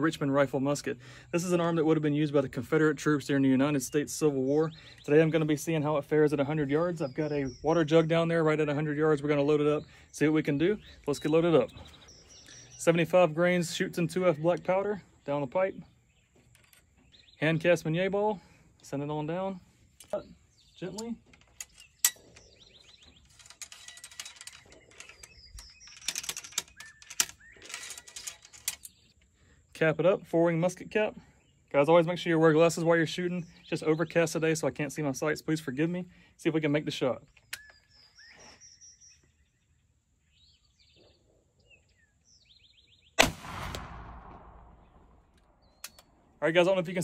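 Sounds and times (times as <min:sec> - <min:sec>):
faint bird chirps: 0:09.0 - 0:13.1, 0:20.0 - 0:29.7, 0:37.2 - 0:43.2
ramrod clinking in rifle barrel: 0:23.2 - 0:28.9
rifle shot with echo: 0:43.2 - 0:45.6.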